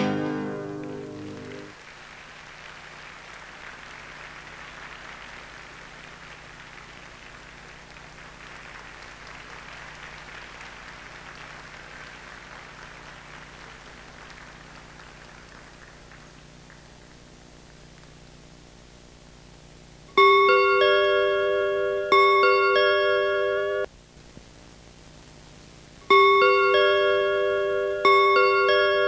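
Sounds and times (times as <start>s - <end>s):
audience applauding: 0.0s - 18.2s
faint low hum: 0.0s - 29.0s.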